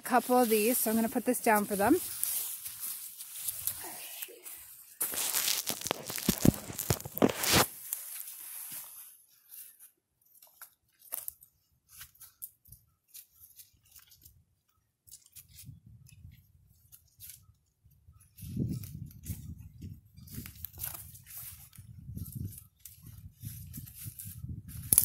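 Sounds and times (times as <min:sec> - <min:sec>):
footsteps crunching dry leaves: 0:00.0 - 0:09.8, 0:20.2 - 0:25.0.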